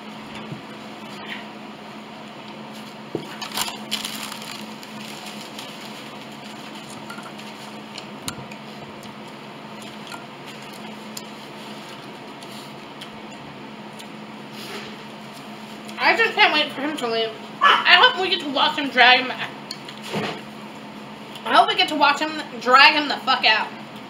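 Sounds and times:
low steady hum: 0.0s - 24.0s
chewing and crunching: 2.3s - 14.2s.

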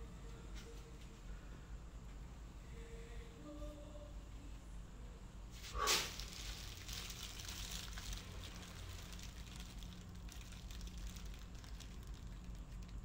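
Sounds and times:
low steady hum: 0.0s - 13.0s
small flame crackling: 5.5s - 13.0s
short sharp scrape: 5.6s - 6.2s.

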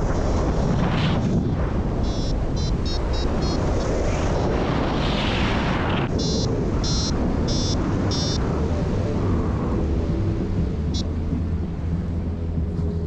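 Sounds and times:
wind rushing over microphone: 0.0s - 13.0s
short high-pitched beeps: 2.0s - 3.7s, 6.2s - 8.4s.

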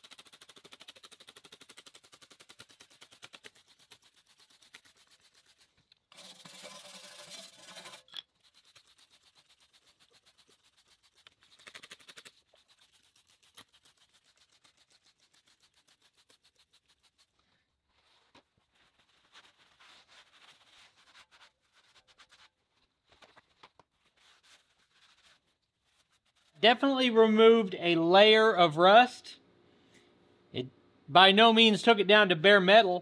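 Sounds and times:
wire brush scrubbing steel: 0.0s - 17.4s.

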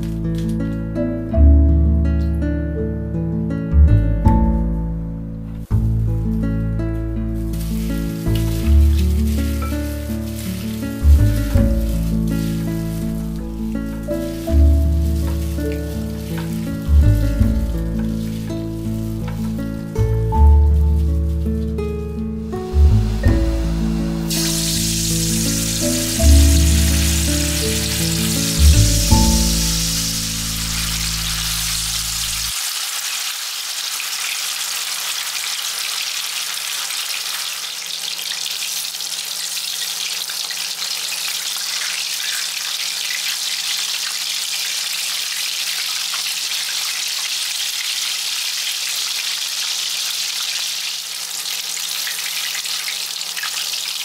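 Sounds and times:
chicken deep-frying in oil: 0.0s - 1.0s, 5.6s - 54.0s
background music: 0.0s - 32.4s.

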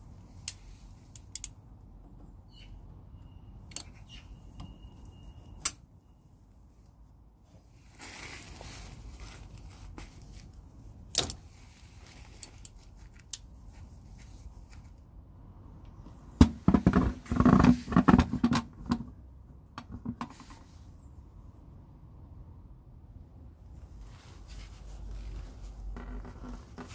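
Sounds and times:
pliers clicking on hose clip: 0.4s - 1.6s
plastic tub knocking and scraping: 16.4s - 19.1s.

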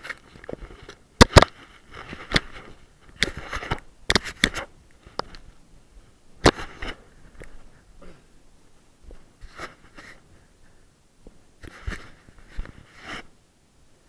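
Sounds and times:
camera rubbing against jacket: 0.0s - 5.6s, 6.4s - 7.9s, 9.1s - 10.3s, 11.6s - 13.4s.

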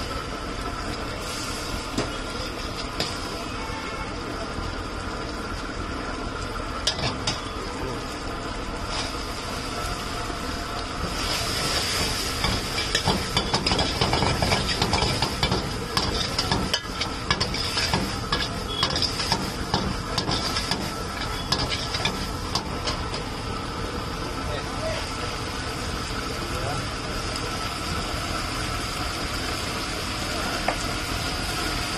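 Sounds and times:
food sizzling in a wok: 0.0s - 31.9s
metal ladle scraping a wok: 11.1s - 23.2s.

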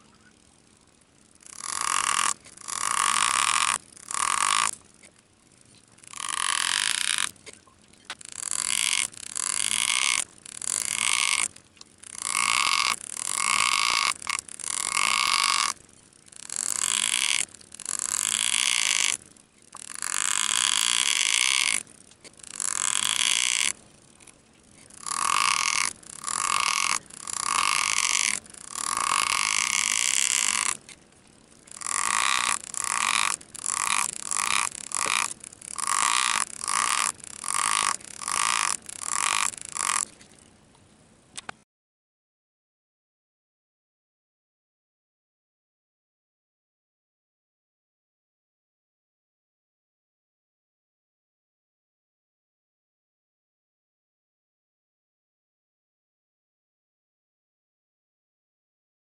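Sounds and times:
pneumatic engraver buzzing: 1.4s - 40.2s.

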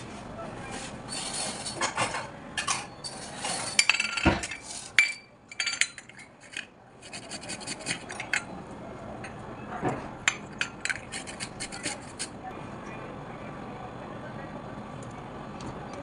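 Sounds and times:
grater rasping: 7.0s - 8.4s, 10.9s - 12.4s.

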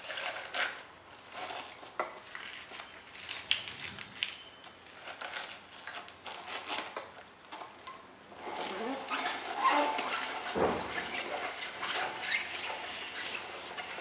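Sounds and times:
spinach leaves crinkling: 0.0s - 8.0s.

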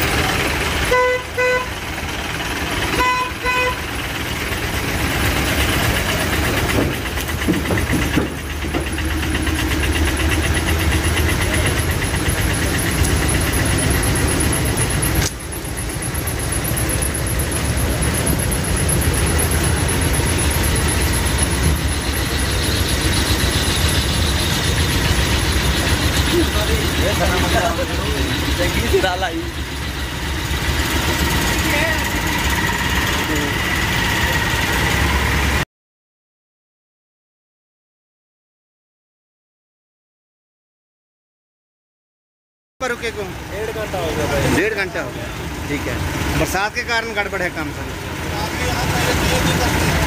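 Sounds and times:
truck engines idling: 0.0s - 35.6s, 42.8s - 50.0s
vehicle horn honking: 0.8s - 2.0s, 2.9s - 4.0s.

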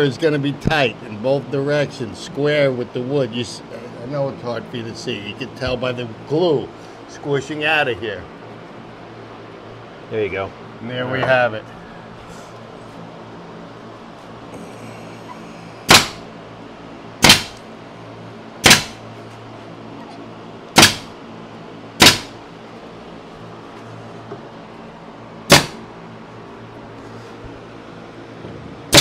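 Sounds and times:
staple gun firing: 15.9s - 16.2s, 17.2s - 17.6s, 18.6s - 19.0s, 20.8s - 21.1s, 22.0s - 22.3s, 25.5s - 25.8s.

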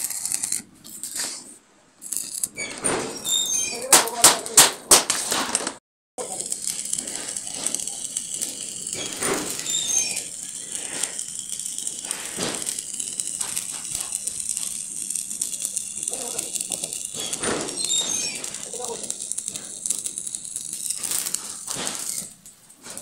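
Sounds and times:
welding arc crackling and popping: 0.0s - 23.0s.

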